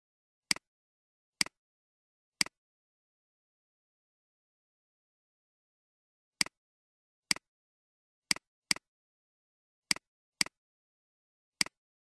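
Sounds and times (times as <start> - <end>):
computer mouse clicks: 1.4 - 1.6, 2.4 - 2.6, 6.4 - 6.6, 8.3 - 8.9, 9.9 - 10.6, 11.6 - 11.8.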